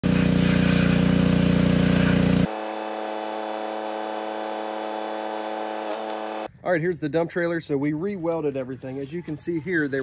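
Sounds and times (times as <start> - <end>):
pressure washer engine drone: 0.0 - 6.5
steady hum: 0.0 - 6.5
spray hissing: 0.1 - 6.5.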